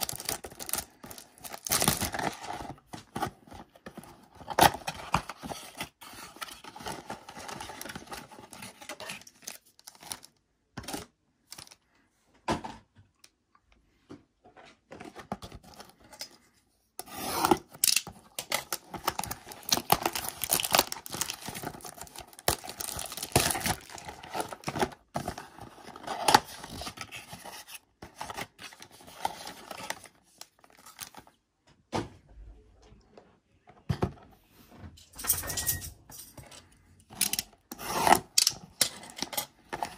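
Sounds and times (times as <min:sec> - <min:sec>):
cellophane crinkling and tearing: 0:00.0 - 0:10.4, 0:17.4 - 0:31.4.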